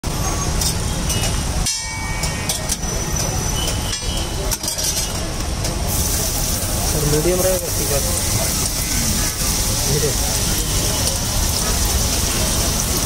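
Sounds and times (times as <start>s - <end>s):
metal spatula scraping griddle: 4.5s - 5.2s.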